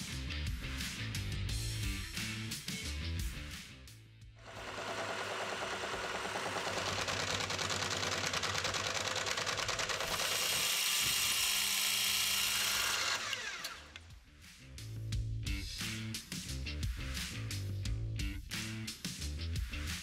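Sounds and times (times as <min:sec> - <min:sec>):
milling machine grinding steel: 0:04.4 - 0:14.0.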